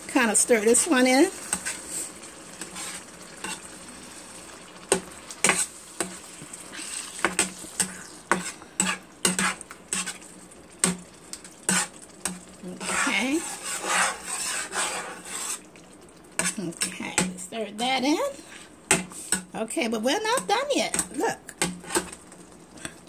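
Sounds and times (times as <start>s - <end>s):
sauce sizzling: 0.0s - 23.0s
metal utensil scraping a pan: 0.7s - 3.8s, 4.9s - 11.0s, 11.6s - 15.7s, 16.4s - 17.4s, 20.3s - 22.2s.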